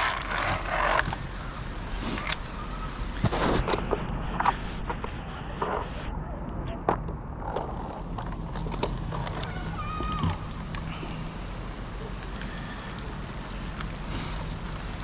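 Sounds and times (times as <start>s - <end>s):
faint clicks: 6.4s - 15.0s.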